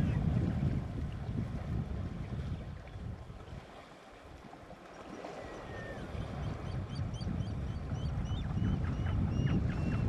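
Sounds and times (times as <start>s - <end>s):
elephants sloshing through water: 0.0s - 6.7s.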